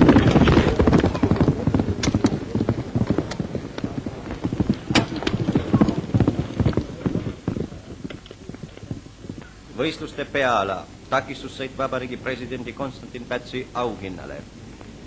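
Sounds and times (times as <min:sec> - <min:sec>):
horse hooves galloping on turf: 0:00.0 - 0:15.0.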